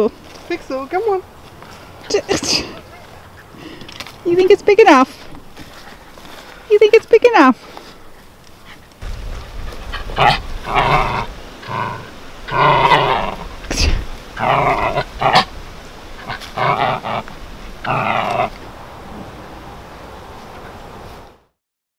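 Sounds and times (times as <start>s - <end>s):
dog growling playfully: 9.6s - 15.6s, 16.2s - 18.6s.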